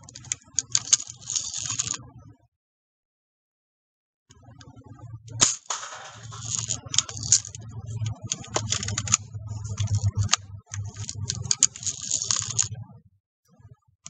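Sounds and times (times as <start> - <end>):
low rumble: 5.2 - 13.2.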